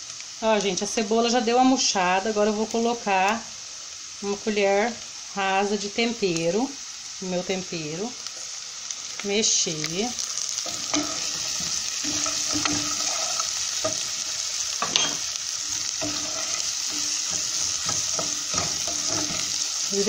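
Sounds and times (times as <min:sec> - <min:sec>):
onion sizzling in hot oil: 0:00.0 - 0:20.0
spoon scraping a metal pot: 0:10.7 - 0:19.8.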